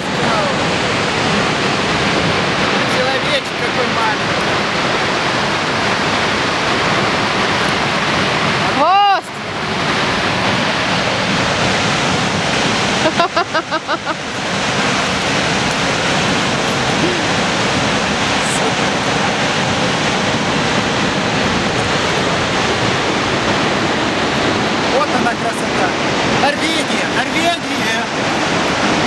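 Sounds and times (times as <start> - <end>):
person's voice: 0.0 - 0.8, 2.6 - 4.6, 15.7 - 20.0, 24.8 - 28.9
waterfall rushing: 0.0 - 29.0.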